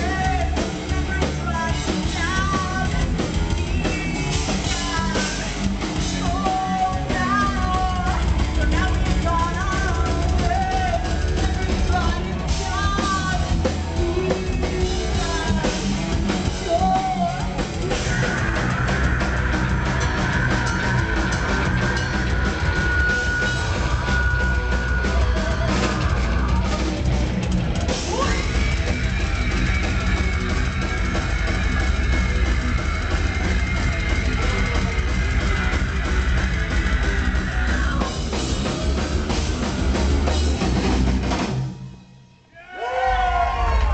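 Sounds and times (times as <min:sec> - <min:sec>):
distorted electric guitars: 0:00.0 - 0:43.9
pounding drum kit: 0:00.0 - 0:43.9.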